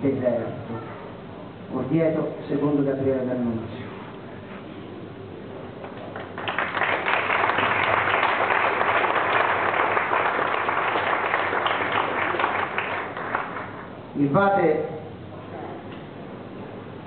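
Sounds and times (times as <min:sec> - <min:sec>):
audience applauding: 0:06.0 - 0:13.9.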